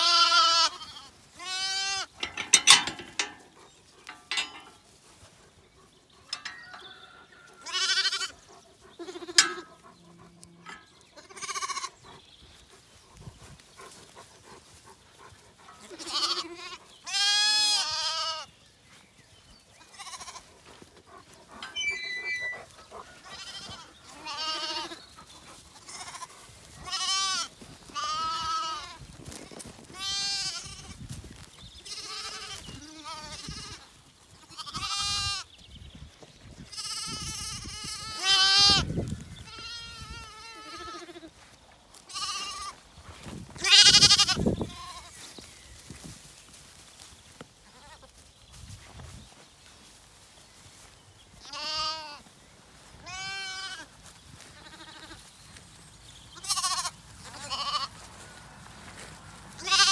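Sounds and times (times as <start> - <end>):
lambs bleating: 0.0 - 3.4, 7.4 - 8.4, 9.0 - 12.0, 15.8 - 18.5, 19.8 - 20.5, 21.6 - 25.0, 25.8 - 29.0, 29.9 - 31.0, 31.8 - 33.8, 34.4 - 35.5, 36.7 - 41.4, 42.0 - 42.8, 43.6 - 45.2, 51.4 - 52.3, 53.0 - 55.3, 56.4 - 58.1, 59.6 - 59.9.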